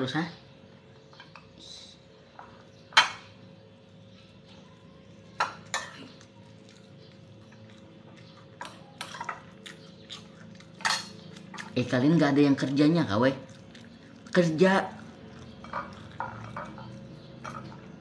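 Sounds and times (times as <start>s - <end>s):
tableware clinking on plates: 2.4s - 3.4s, 5.3s - 6.2s, 8.6s - 9.5s, 10.7s - 11.7s, 15.6s - 17.9s.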